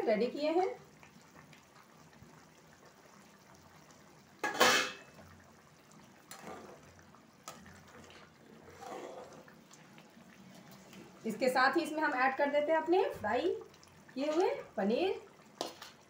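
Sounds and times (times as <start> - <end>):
spatula stirring thick gravy: 6.1 - 11.1.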